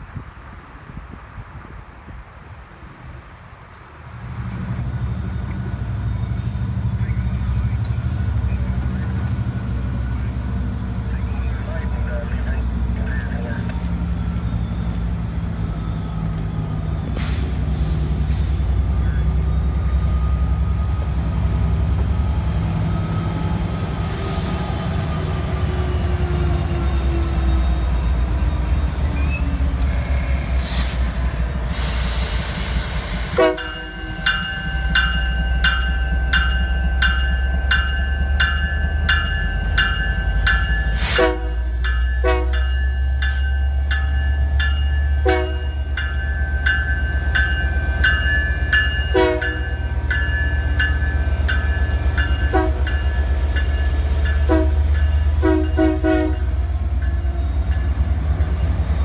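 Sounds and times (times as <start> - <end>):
diesel locomotive engine drone: 0.0 - 59.0
locomotive bell ringing: 33.4 - 59.0.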